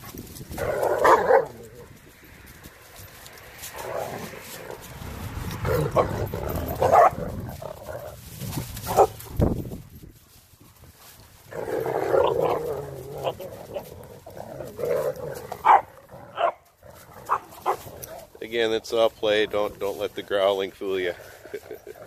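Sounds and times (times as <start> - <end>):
dogs growling: 0.5 - 2.0, 3.3 - 9.4, 11.4 - 22.0
sharp dog barks: 6.8 - 7.2, 15.6 - 16.6.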